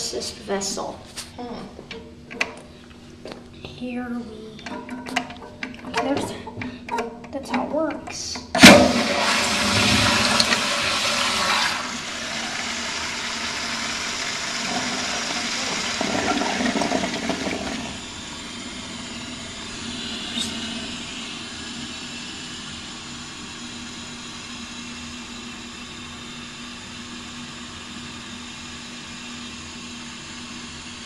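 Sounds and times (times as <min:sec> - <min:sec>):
tank refilling hiss: 0:08.6 - 0:24.4
toilet flush rushing water: 0:08.6 - 0:25.4.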